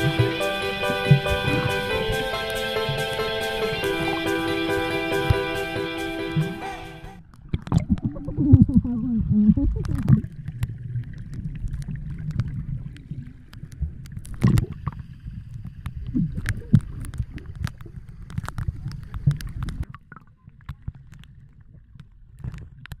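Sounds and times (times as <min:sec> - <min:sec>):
sharp underwater clicks: 0:09.6 - 0:23.0.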